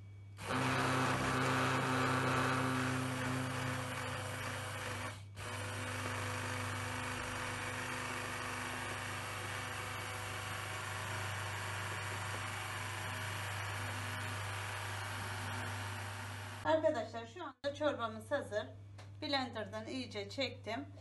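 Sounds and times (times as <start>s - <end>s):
hand blender pureeing soup: 0.4s - 16.6s.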